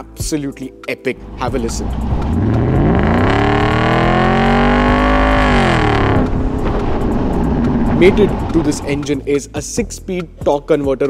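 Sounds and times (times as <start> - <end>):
car engine revving: 1.2 - 9.1.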